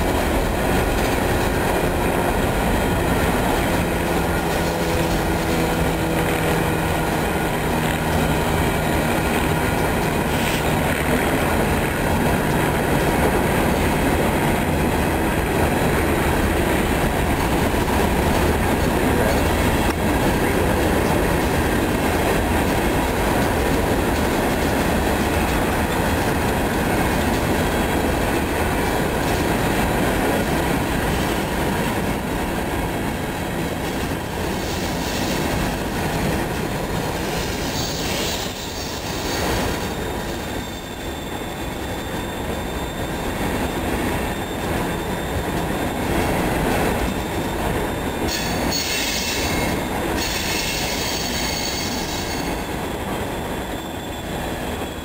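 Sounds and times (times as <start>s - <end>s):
train wheels rumbling on rail: 0.0s - 55.0s
high-pitched wheel squeal: 37.4s - 46.1s, 46.9s - 55.0s.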